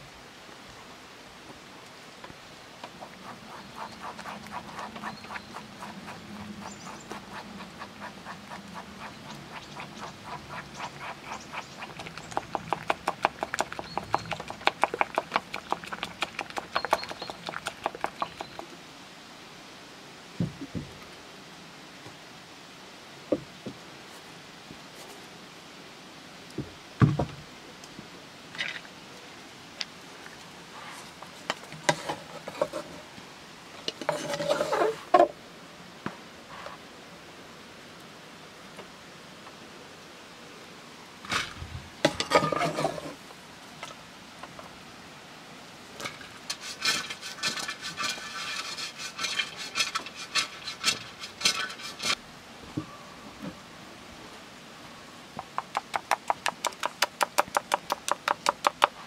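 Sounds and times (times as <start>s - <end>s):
quick repeated scraping: 46.5s - 52.2s.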